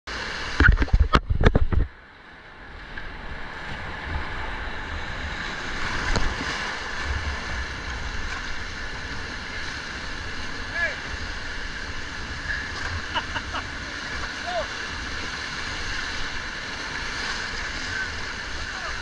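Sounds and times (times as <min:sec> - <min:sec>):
whitewater rapids rushing: 0:03.9 - 0:19.0.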